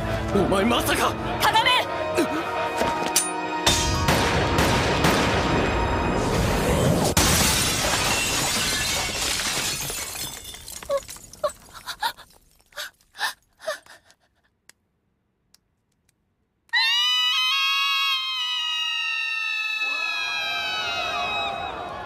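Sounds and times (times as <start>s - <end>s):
glass window shattering: 7.0s - 12.8s
falling glass pieces clinking: 7.3s - 13.2s.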